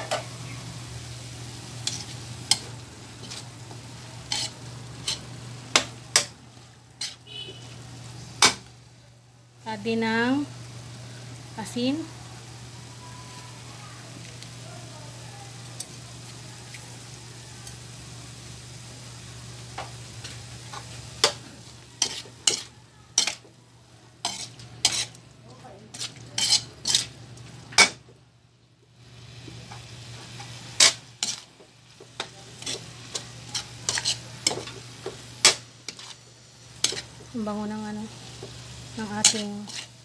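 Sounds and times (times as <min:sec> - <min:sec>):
food sizzling: 0:00.0 - 0:40.0
metal spatula scraping a wok: 0:01.8 - 0:03.5, 0:04.2 - 0:05.3, 0:07.0 - 0:07.3, 0:22.0 - 0:23.4, 0:24.2 - 0:25.2, 0:25.9 - 0:27.2, 0:30.3 - 0:31.5, 0:32.2 - 0:37.1, 0:39.0 - 0:40.0.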